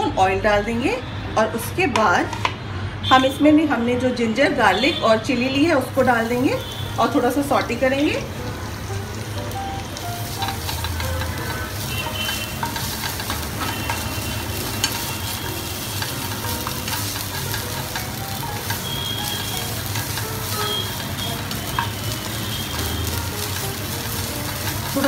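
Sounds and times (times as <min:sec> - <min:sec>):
spatula scraping and tapping pan: 0:01.9 - 0:02.6, 0:09.8 - 0:25.0
food sizzling in oil: 0:05.4 - 0:25.0.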